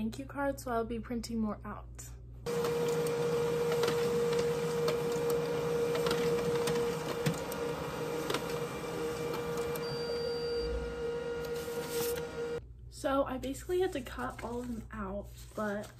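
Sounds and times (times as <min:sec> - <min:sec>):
printer clicks: 0:02.5 - 0:10.2
printer humming: 0:02.5 - 0:12.6.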